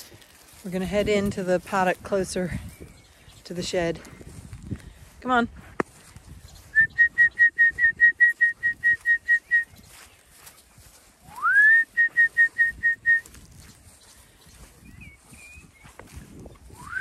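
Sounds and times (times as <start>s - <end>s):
person whistling short notes: 6.7s - 9.7s, 11.3s - 13.3s, 16.8s - 17.0s.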